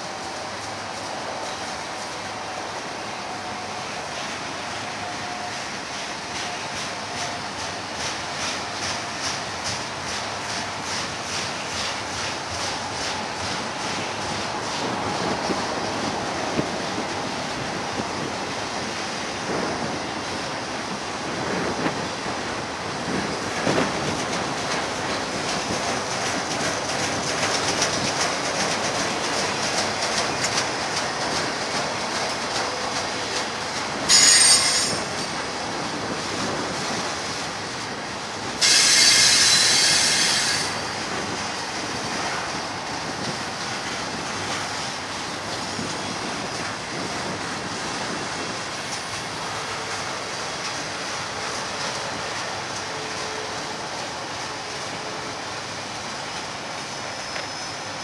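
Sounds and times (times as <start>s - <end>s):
freight train rolling past: 0.0s - 58.0s
train wheels clicking: 0.0s - 58.0s
metallic wheel squeal: 34.1s - 35.2s, 38.6s - 41.0s, 56.9s - 58.0s.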